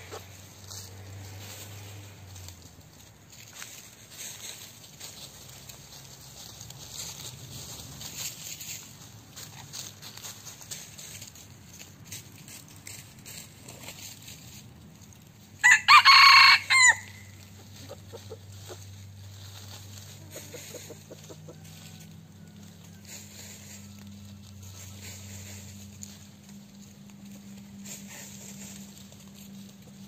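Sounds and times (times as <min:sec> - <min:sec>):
rooster crowing: 0:15.6 - 0:17.4, 0:21.5 - 0:23.2.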